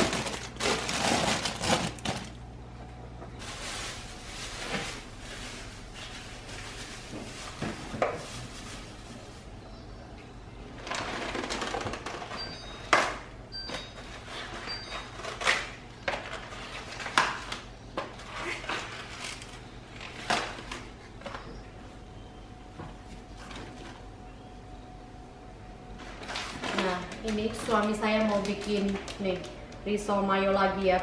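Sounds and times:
cabbage leaves rustling: 0.0 - 2.4, 3.4 - 9.6, 26.3 - 29.5.

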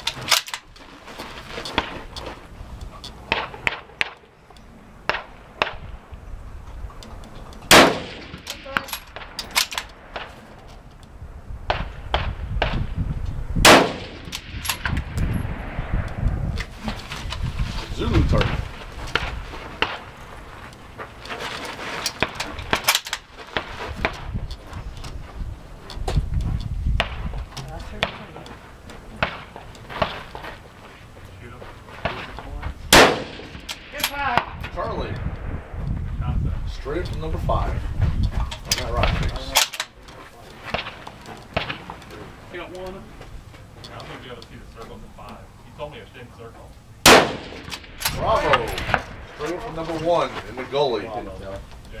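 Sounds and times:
sharp cracks and clicks: 0.0 - 0.8, 7.0 - 12.8, 13.7 - 15.2, 22.0 - 23.3, 33.0 - 35.4, 38.6 - 42.2.

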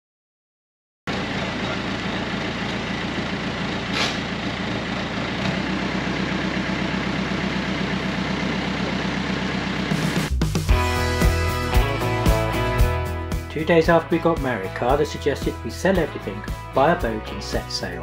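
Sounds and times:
crane engine running: 1.1 - 10.4.

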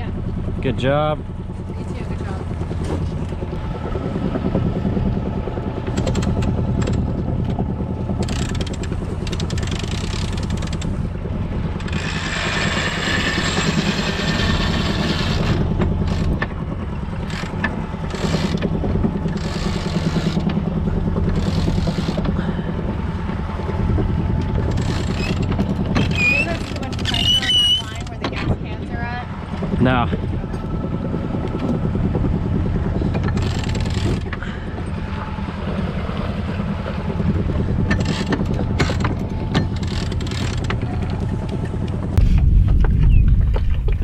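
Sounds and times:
boat engine running: 0.0 - 44.0
winch clicking: 8.2 - 11.0, 24.4 - 28.4, 33.1 - 34.5, 37.8 - 42.0.

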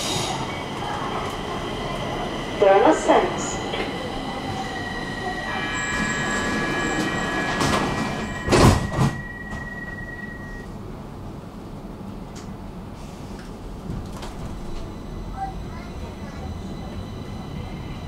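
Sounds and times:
metro train rumble: 0.0 - 18.0
high steady squeal: 3.2 - 10.6.

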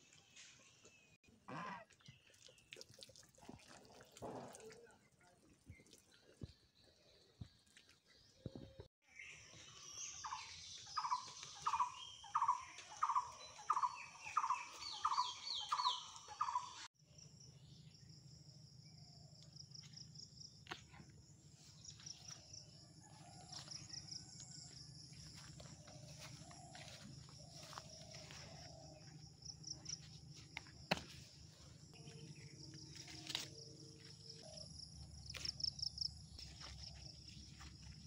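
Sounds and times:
insect chorus trilling: 25.3 - 28.4.

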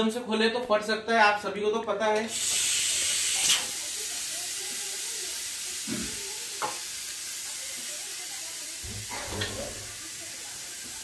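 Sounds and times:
pressure cooker steam hissing: 2.3 - 11.0.

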